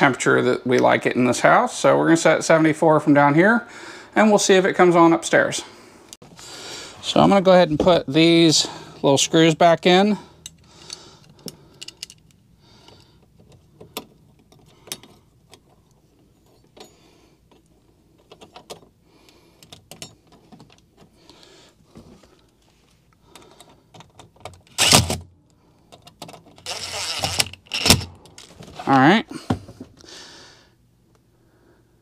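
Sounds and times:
cordless drill driving screws: 24.8 - 25.2, 26.6 - 28.1
screws and metal plate clicking: 25.9 - 28.5.

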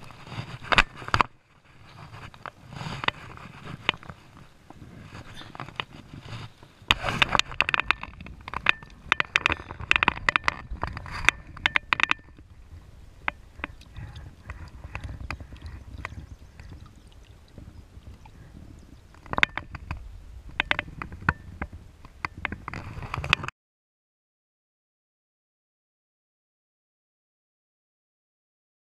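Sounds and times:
water splashing and sloshing: 0.0 - 23.4
sharp knocks and clicks: 6.9 - 12.4, 19.2 - 20.0, 20.6 - 23.5.

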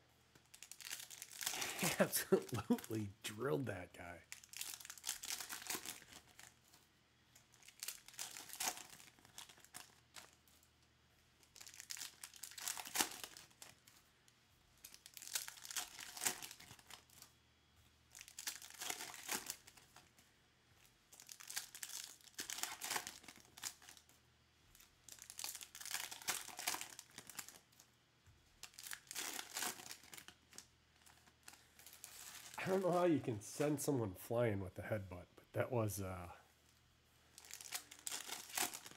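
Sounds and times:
foil wrappers crinkling and tearing: 0.4 - 3.4, 4.3 - 6.8, 7.4 - 10.6, 11.4 - 14.0, 14.8 - 17.4, 18.1 - 20.1, 21.1 - 27.9, 28.6 - 33.2, 37.3 - 38.9.

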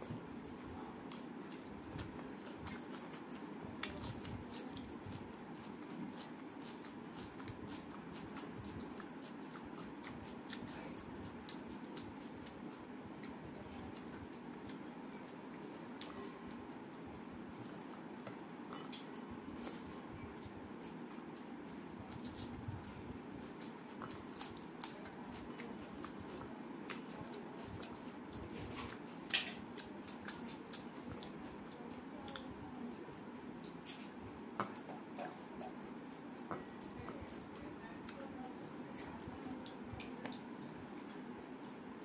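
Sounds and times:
fingers mixing rice on plate: 0.0 - 42.0
low background noise: 0.0 - 42.0
mouth clicks while chewing: 0.4 - 22.9, 23.5 - 38.2.

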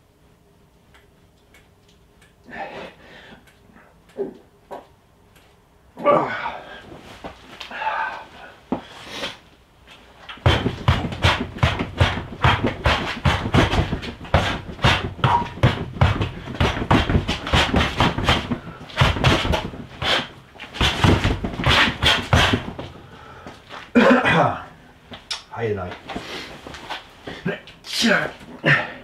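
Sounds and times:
punches hitting rubber dummy: 10.4 - 23.0.

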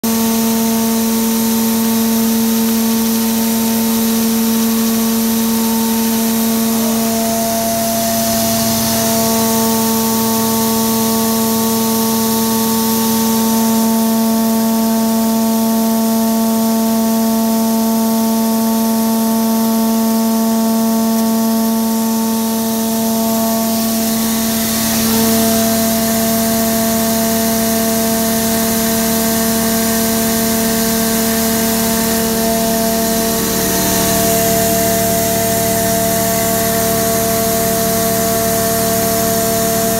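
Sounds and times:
crusher machine humming: 1.8 - 14.0, 21.2 - 39.9.

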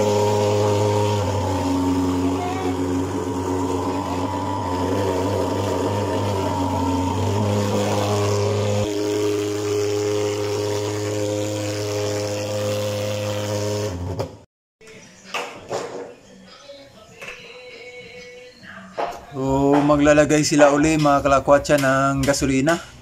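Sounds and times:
fogging machine droning: 0.0 - 14.1.

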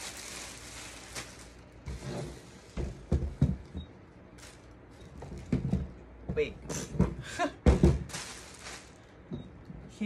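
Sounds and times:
plastic wrap rustling: 0.0 - 3.1, 4.2 - 6.1, 7.7 - 9.3.

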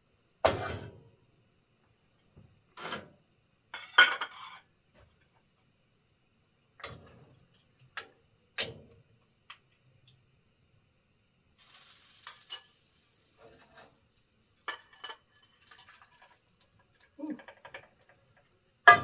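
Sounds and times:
dishes and pans clanking: 3.8 - 4.7, 14.6 - 16.3, 17.3 - 18.2.

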